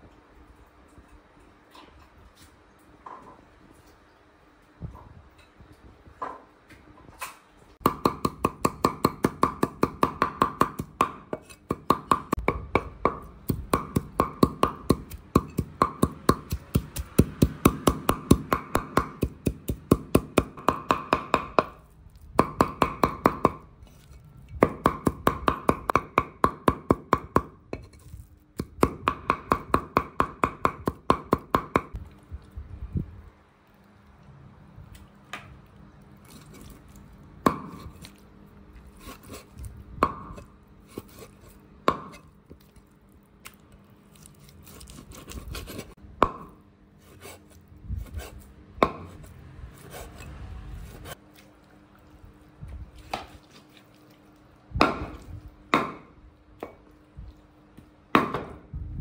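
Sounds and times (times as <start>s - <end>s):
cleaver chopping on wooden board: 7.8s - 21.8s, 22.4s - 23.6s, 41.9s - 42.2s, 54.8s - 56.8s, 58.1s - 58.6s.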